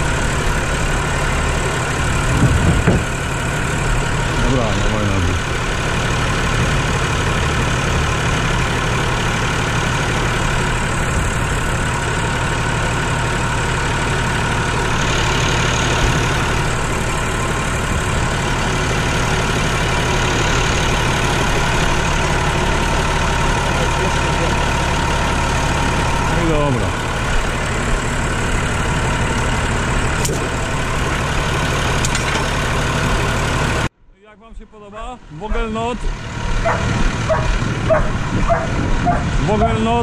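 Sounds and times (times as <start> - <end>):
diesel tractor engine idling: 0.0 - 40.0.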